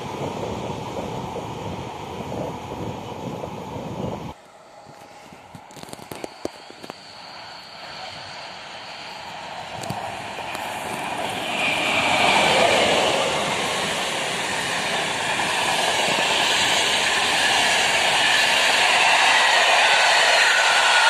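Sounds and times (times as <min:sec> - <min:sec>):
train wheels rolling on rail: 0:08.6 - 0:21.0.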